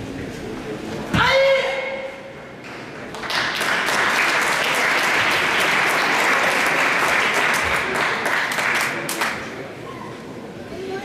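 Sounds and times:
audience applauding: 3.1 - 9.6.

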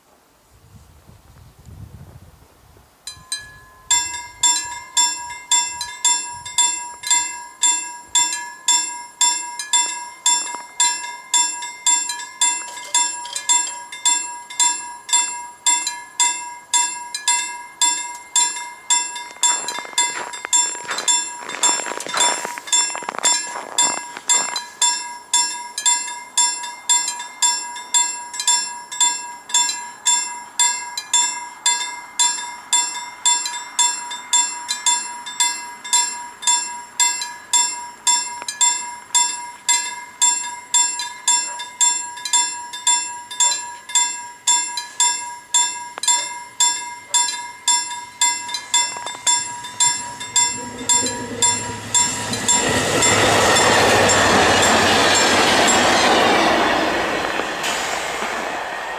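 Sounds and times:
level crossing bell ringing: 3.1 - 57.0
brief rushing noise: 56.8 - 58.9.

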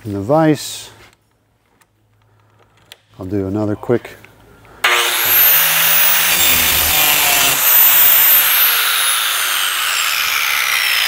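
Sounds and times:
angle grinder grinding metal: 4.8 - 11.0
grinder disc spinning down: 4.9 - 11.0.

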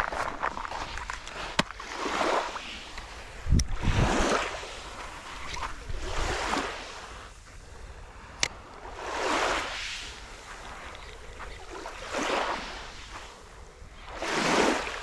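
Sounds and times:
waves splashing on rocky shore: 0.9 - 7.3.

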